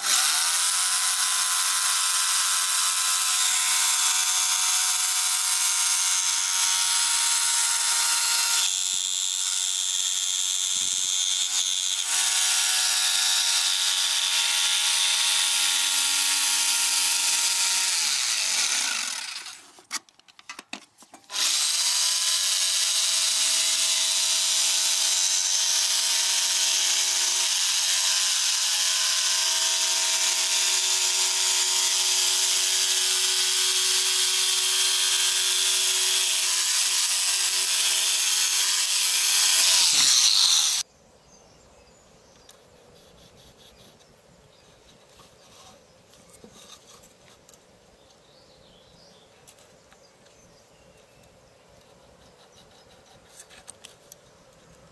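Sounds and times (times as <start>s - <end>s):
jigsaw cutting plywood: 0.0s - 19.8s, 21.3s - 40.8s.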